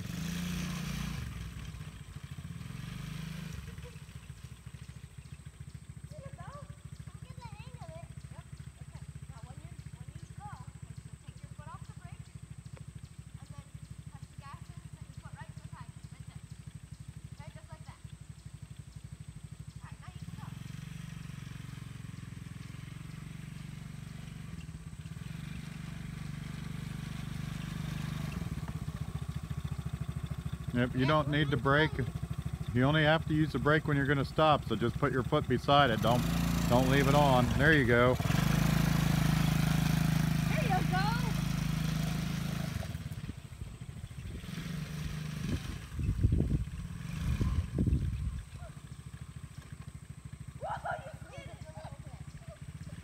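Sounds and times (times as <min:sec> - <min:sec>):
small atv engine running: 0:00.0 - 0:53.0
low thumps and rumbles: 0:45.4 - 0:48.7.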